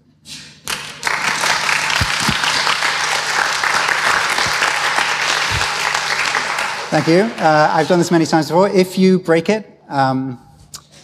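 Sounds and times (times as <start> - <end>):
audience applauding: 0.7 - 8.3.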